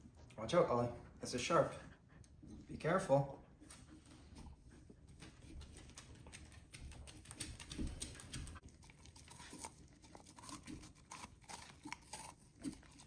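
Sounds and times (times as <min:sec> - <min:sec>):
dog chewing pumpkin: 0:05.1 - 0:13.0
dog claws tapping on hard floor: 0:05.2 - 0:08.6.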